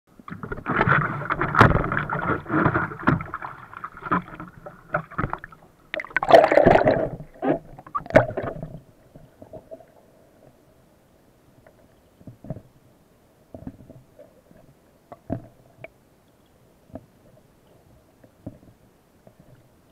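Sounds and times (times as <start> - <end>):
knocks and gurgles: 0.2 - 9.9
sea water splashing and sloshing: 0.2 - 10.7.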